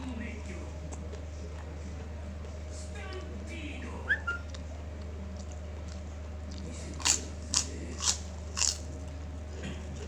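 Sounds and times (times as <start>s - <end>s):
steady low hum: 0.0s - 10.0s
cracker crunching: 4.4s - 9.2s.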